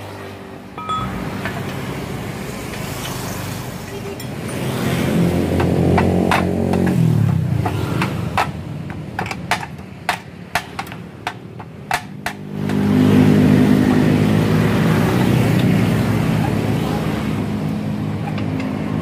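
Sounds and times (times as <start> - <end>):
hammer striking metal: 0.8 - 2.4.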